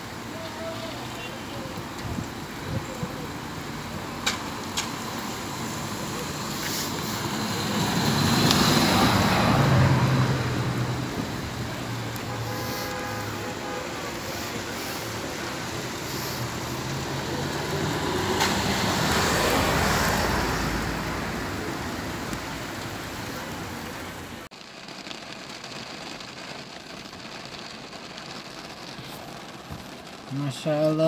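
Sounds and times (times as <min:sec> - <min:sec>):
tyres hissing on wet road: 0:00.0 - 0:31.0
vehicle passing: 0:05.0 - 0:24.3.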